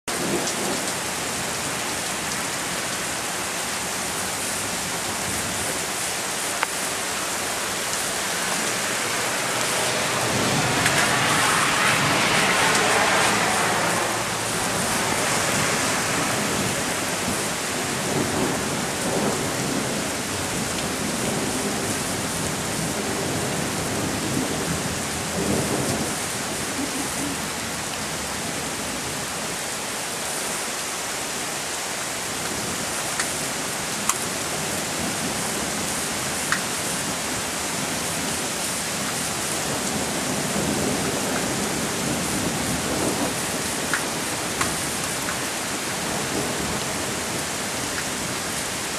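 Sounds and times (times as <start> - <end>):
heavy rain pouring: 0.0 - 48.9
thunder rumbling: 5.2 - 27.4.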